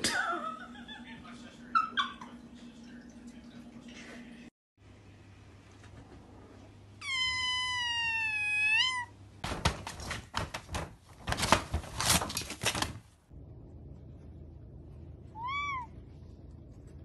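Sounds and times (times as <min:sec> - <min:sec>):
cat meowing: 0:07.0 - 0:09.2, 0:15.3 - 0:16.0
cat clawing and tearing paper: 0:09.5 - 0:13.1.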